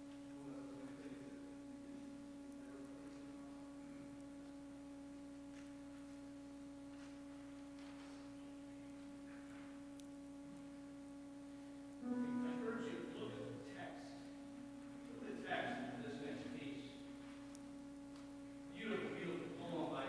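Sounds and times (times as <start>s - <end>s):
faint steady pure tone: 0.0s - 20.0s
soft shuffling noises: 6.9s - 8.4s.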